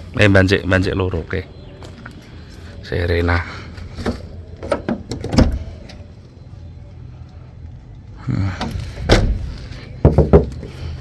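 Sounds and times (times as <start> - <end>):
car door shutting thud: 9.1 - 9.5.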